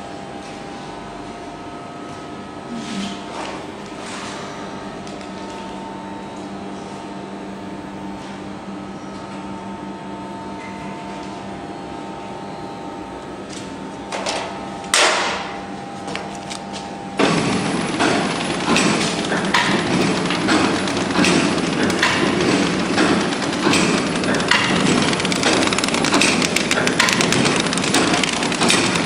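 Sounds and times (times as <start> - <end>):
packaging machine humming: 10.5 - 29.0
loud rough machine noise: 14.1 - 29.0
machine tones: 15.7 - 29.0.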